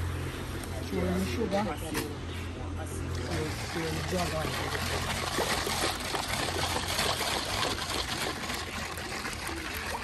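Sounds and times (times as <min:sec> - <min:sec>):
flowing water: 0:02.9 - 0:10.0.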